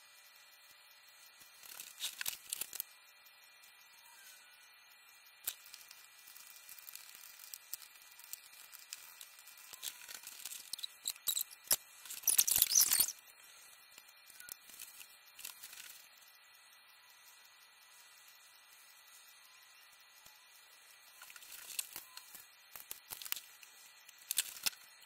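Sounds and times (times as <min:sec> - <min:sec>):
crackling rustle: 0:01.5 - 0:02.9, 0:05.4 - 0:16.1, 0:21.2 - 0:25.0.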